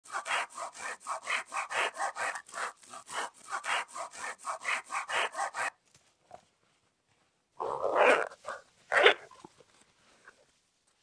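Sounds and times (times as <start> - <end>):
hand saw cutting a branch: 0.0 - 5.8.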